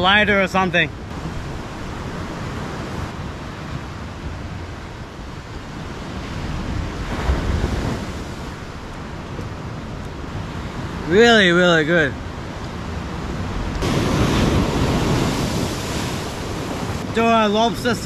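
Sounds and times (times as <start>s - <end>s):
surf washing onto beach: 0.0s - 18.0s
wind rumble on microphone: 0.0s - 18.0s.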